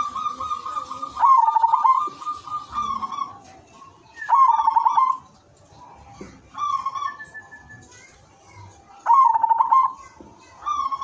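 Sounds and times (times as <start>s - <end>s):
dove cooing: 0.0s - 5.4s, 9.0s - 11.0s.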